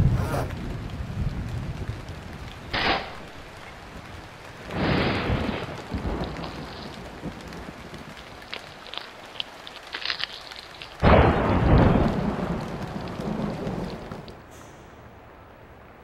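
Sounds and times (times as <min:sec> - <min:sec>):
low thunder rumble: 0:00.0 - 0:08.6, 0:11.0 - 0:14.5
steady rain hiss: 0:00.0 - 0:16.0.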